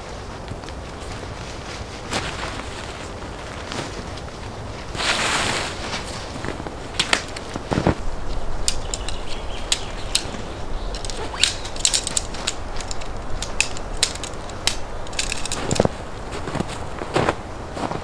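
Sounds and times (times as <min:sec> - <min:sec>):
boots crunching in snow: 0:00.0 - 0:08.6, 0:15.3 - 0:18.0
tent fabric and poles crinkling: 0:00.0 - 0:18.0.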